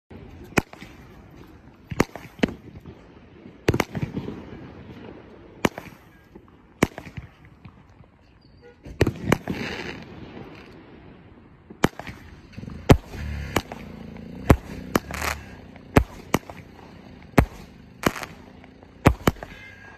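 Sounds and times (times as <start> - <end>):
fireworks reports: 0.1 - 19.9
hissing crackle: 11.8 - 19.7.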